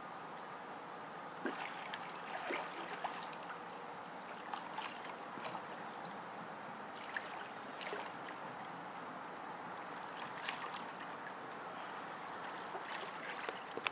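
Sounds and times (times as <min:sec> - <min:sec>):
water sloshing and splashing: 0:01.4 - 0:06.2, 0:06.9 - 0:08.8, 0:09.8 - 0:13.9.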